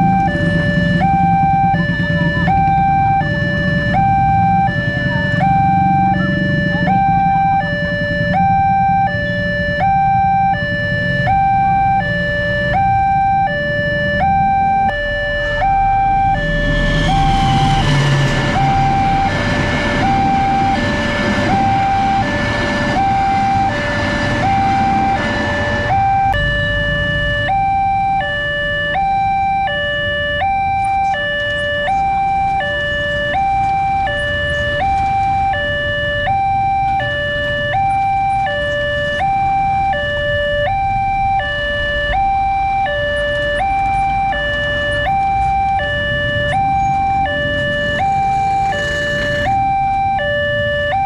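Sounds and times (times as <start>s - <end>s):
level crossing two-tone alarm: 0.0s - 51.0s
passing train rumble: 14.8s - 27.6s.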